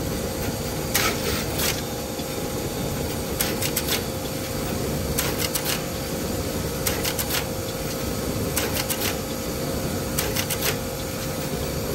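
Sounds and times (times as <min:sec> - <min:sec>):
machine hum and whine: 0:00.0 - 0:11.9
quick mechanical clicks: 0:05.2 - 0:05.9, 0:06.8 - 0:07.5, 0:08.6 - 0:09.2, 0:10.2 - 0:10.8.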